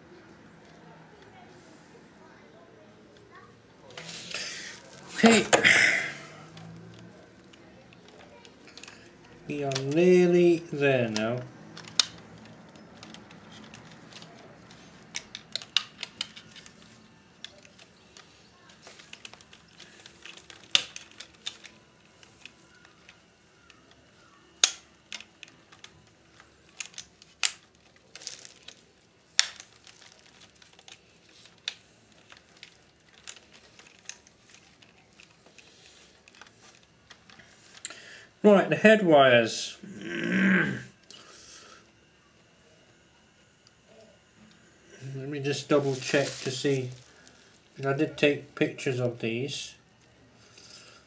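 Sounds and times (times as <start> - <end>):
plastic parts clicking and tapping: 6.4 - 38.0.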